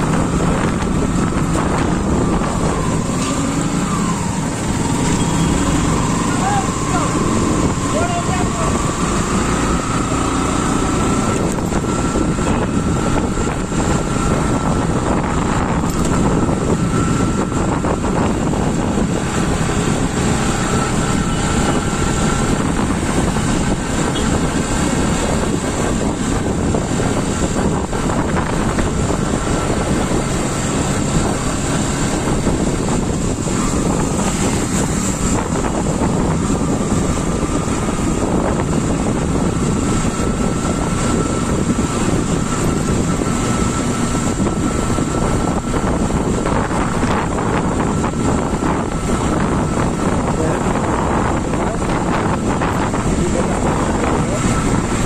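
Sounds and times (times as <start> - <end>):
motorcycle engine running: 0.0 - 55.0
wind buffeting microphone: 0.0 - 55.0.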